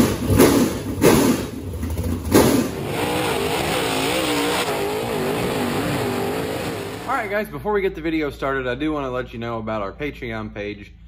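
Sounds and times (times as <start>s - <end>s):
race engine revving: 0.0s - 7.2s
race cars on dirt track: 0.0s - 7.3s.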